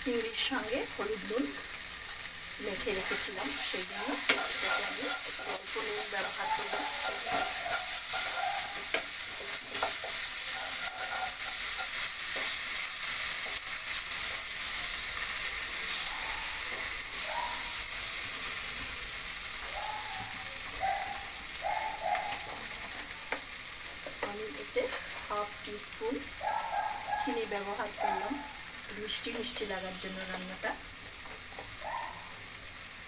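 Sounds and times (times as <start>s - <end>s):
paste sizzling in oil: 0.0s - 33.0s
wooden spatula scraping pan: 3.0s - 12.7s.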